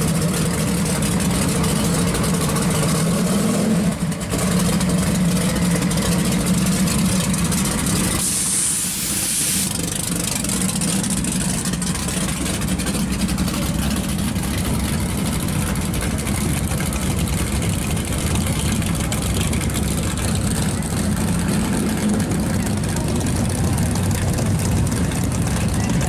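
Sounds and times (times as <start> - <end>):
car engine lumpy idle: 0.0 - 26.0
brief hiss: 8.2 - 9.8.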